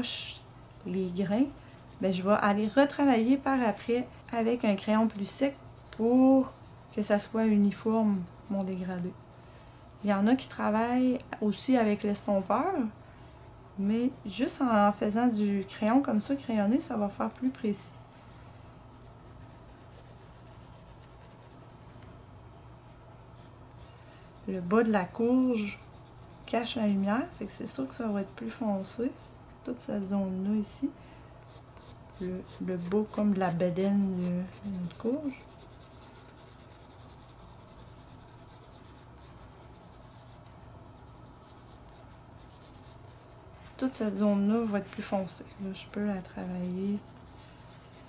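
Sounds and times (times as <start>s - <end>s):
pencil scratching on paper: 4.2s - 9.1s, 18.9s - 22.0s, 23.4s - 29.3s, 31.5s - 45.1s, 45.7s - 48.0s
pencil shading on paper: 45.8s - 47.1s.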